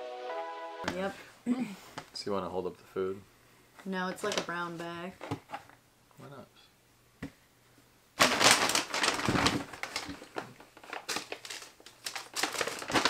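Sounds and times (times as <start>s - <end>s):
paper bag crinkling: 8.2s - 13.0s.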